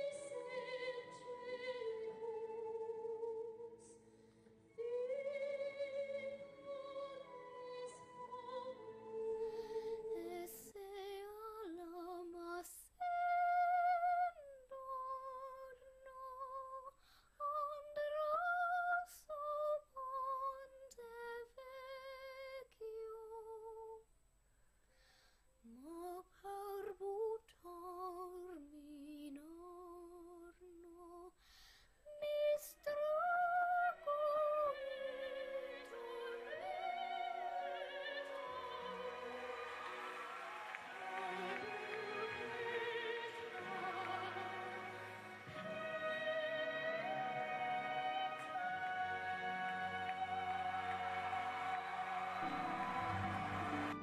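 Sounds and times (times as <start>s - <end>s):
girl singing operatically: 4.8s - 24.0s, 32.1s - 39.8s
musical accompaniment: 35.1s - 54.0s.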